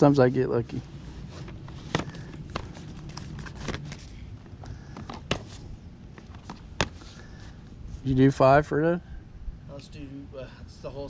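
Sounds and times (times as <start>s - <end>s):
plastic cases clacking: 1.4s - 7.0s.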